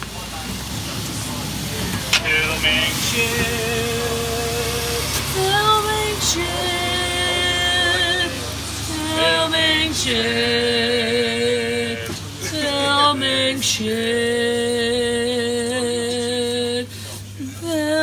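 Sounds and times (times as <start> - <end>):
steady low hum: 0.0 - 18.0
person singing long notes: 2.2 - 18.0.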